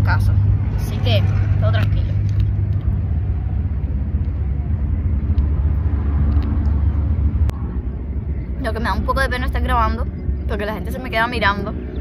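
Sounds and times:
road traffic engine rumble: 0.0 - 12.0.

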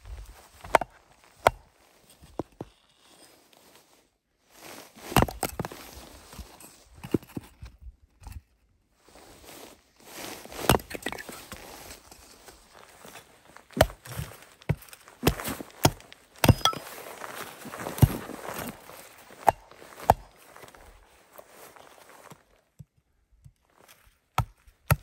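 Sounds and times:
snow crunching: 9.0 - 22.6.

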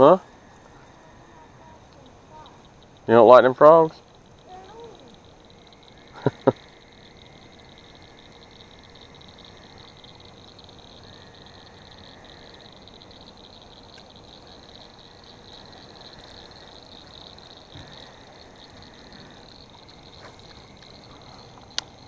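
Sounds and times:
frogs trilling: 0.0 - 22.0.

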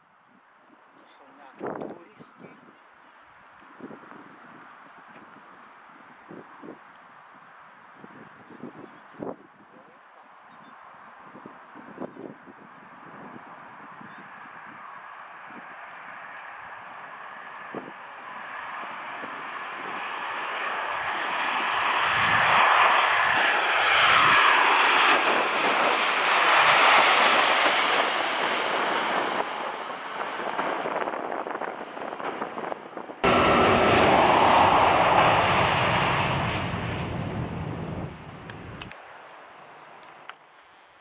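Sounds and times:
jet engines overhead: 10.1 - 40.4.

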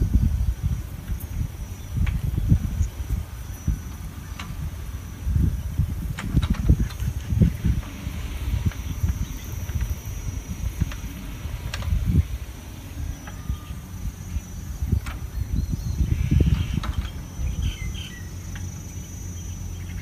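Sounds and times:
insect drone: 0.0 - 20.0
low uneven rumble: 0.0 - 20.0
faint bird chirps: 12.9 - 20.0.

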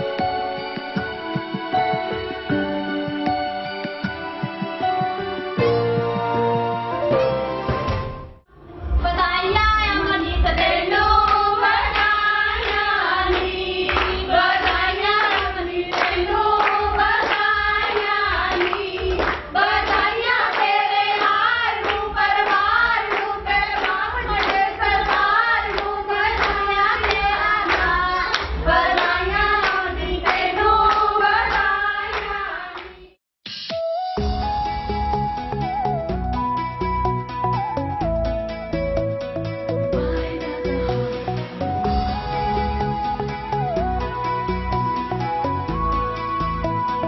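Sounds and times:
rhythmic hand clapping: 0.0 - 6.6, 10.5 - 33.2
women singing together: 9.0 - 33.2.

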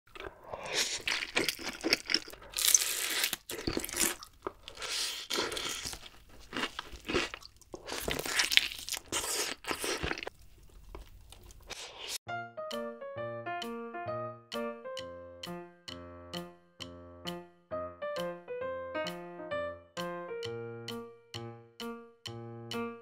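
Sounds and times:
slurping noodles: 0.1 - 6.0, 6.7 - 12.2
chewing: 0.1 - 12.2
crunching bites of fried chicken: 0.1 - 12.2.

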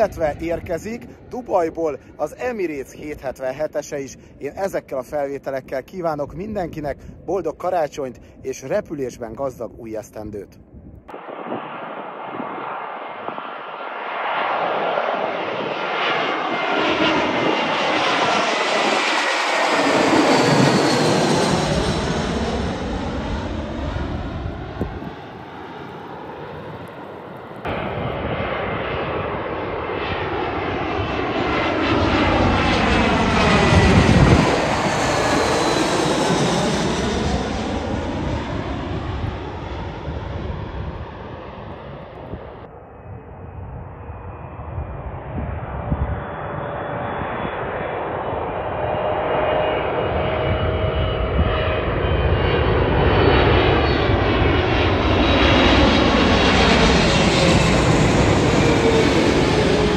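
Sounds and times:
jet airliner passing overhead: 0.0 - 59.9
turbofan engines whining: 10.6 - 59.9.

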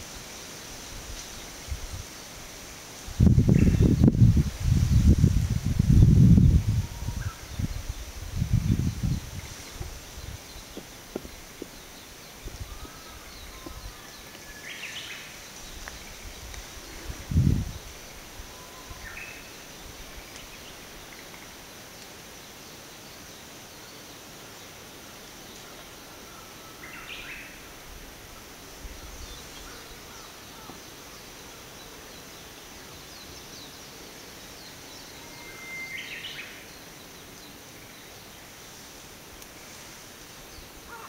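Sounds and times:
forest background hiss: 0.0 - 41.0
birds whistling calls: 34.8 - 36.8.

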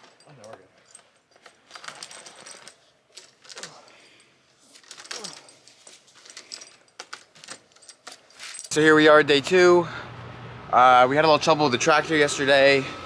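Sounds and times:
steel chain clinking and rattling: 0.0 - 9.2.

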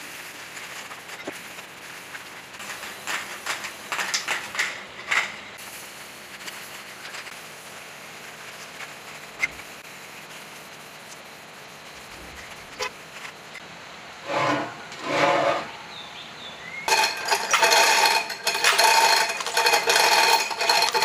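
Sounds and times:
spray can hissing: 5.6 - 12.7.

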